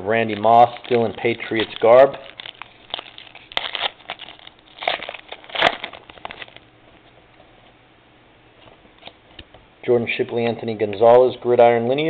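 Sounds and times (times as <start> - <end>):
foil wrapper crinkling: 0.0 - 6.7
cards being handled: 0.2 - 6.6.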